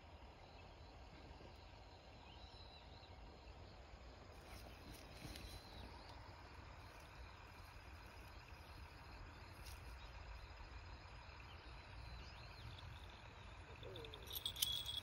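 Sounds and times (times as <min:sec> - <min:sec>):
outdoor background hiss: 0:00.0 - 0:15.0
high insect chirping: 0:04.4 - 0:15.0.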